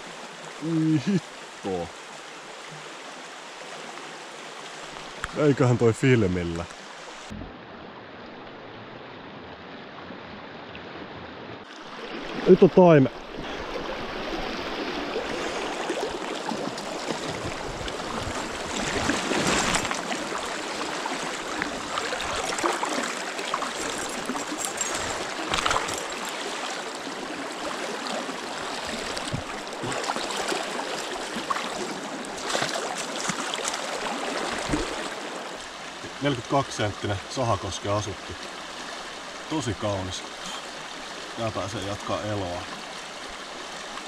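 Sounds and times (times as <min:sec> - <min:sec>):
short splashes or knocks: 0:16.6 - 0:20.2, 0:32.4 - 0:35.1.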